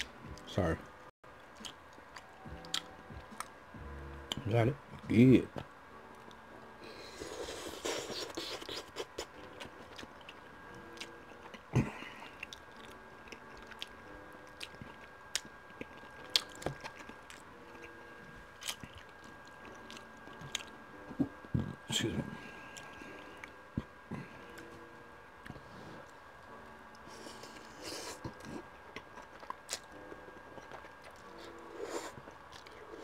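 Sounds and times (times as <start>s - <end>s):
close chewing with mouth smacks: 7.3s - 17.9s, 18.6s - 20.8s, 27.2s - 33.0s.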